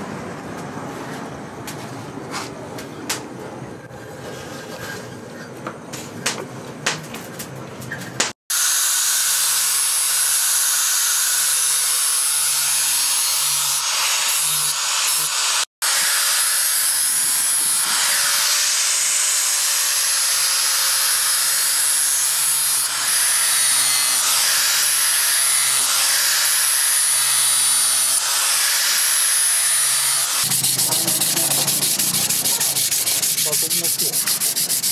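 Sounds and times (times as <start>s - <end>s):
angle grinder grinding metal: 8.5s - 34.9s.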